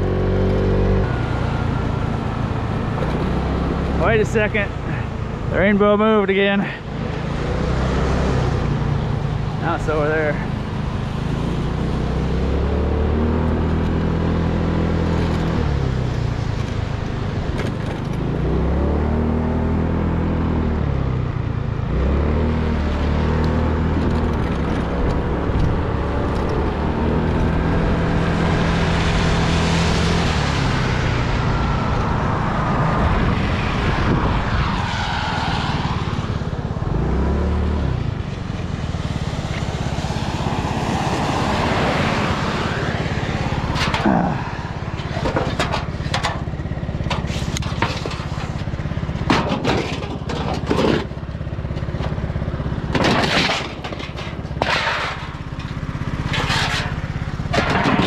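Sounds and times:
vehicle engine running: 0.0s - 18.3s, 36.4s - 58.0s
passing traffic rushing: 0.0s - 58.0s.

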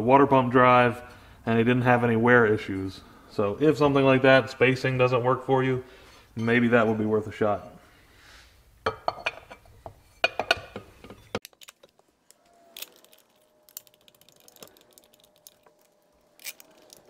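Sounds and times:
metal clicks and clinks: 12.8s - 17.0s.

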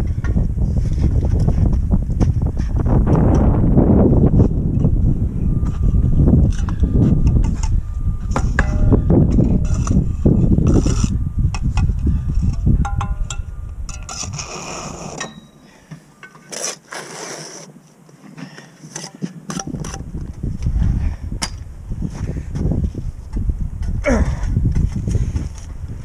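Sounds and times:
low rumble: 0.0s - 15.6s
trowel scraping concrete blocks: 16.3s - 17.8s.

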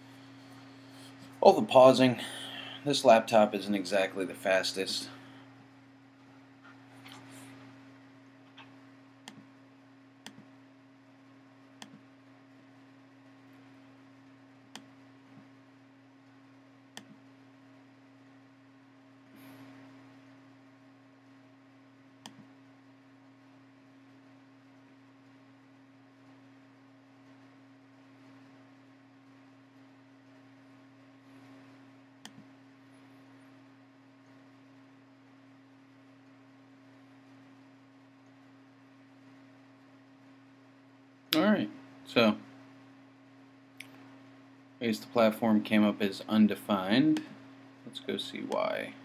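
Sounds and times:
faint low hum: 0.0s - 49.0s
computer mouse clicks: 8.6s - 9.5s, 10.2s - 10.5s, 11.8s - 12.0s, 17.0s - 17.2s, 22.2s - 22.5s, 32.2s - 32.5s.

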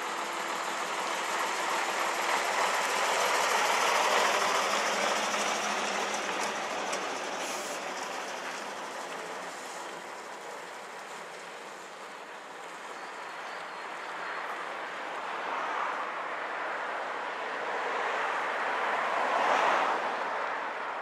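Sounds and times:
bus engine passing: 0.0s - 16.2s.

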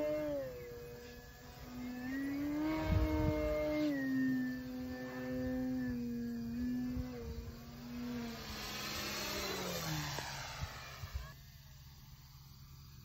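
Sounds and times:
model plane motor buzzing whine: 0.0s - 13.0s
low rumble: 4.5s - 11.4s.

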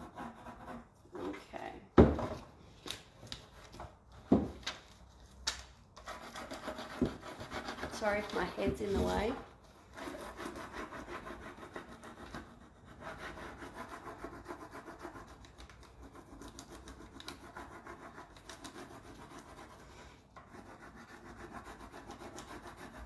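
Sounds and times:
papery scratching of rubbing: 6.0s - 19.9s, 20.5s - 23.0s.

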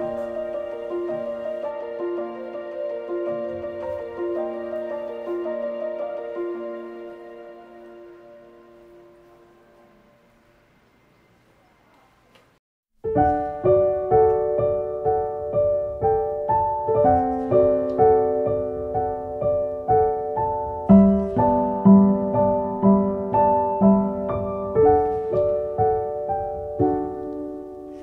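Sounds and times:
gentle piano melody: 0.0s - 10.8s, 13.0s - 28.0s.

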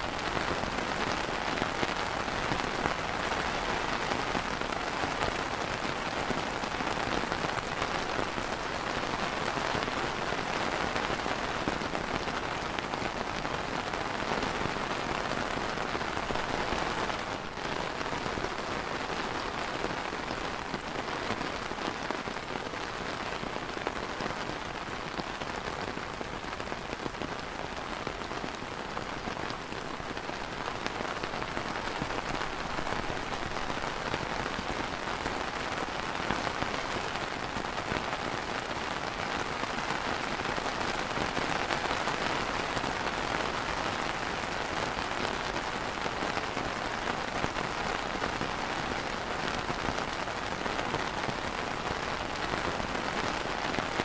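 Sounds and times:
rain on plastic umbrella: 0.0s - 54.0s.

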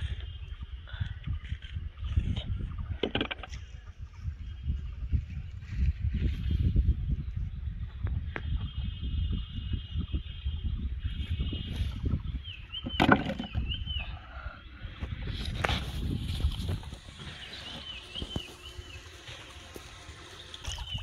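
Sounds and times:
wind rumbling on microphone: 0.0s - 21.0s
small bird chirping: 16.2s - 21.0s.

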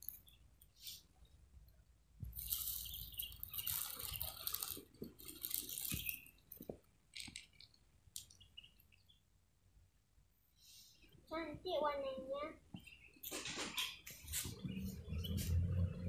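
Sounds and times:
plastic bag rustling: 2.3s - 7.7s
kibble rattling: 2.4s - 8.5s.

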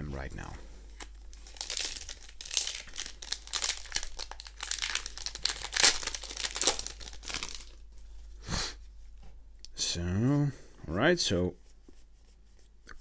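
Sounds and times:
foil wrapper crinkling: 1.0s - 7.9s.

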